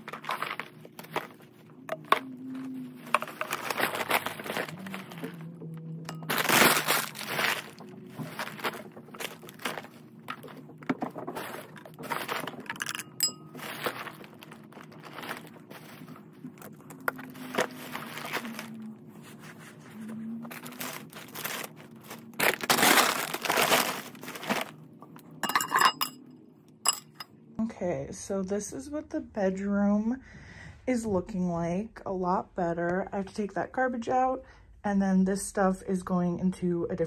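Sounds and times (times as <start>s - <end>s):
plastic garbage bag crinkling: 0.0s - 1.6s, 3.0s - 5.5s, 6.1s - 24.8s.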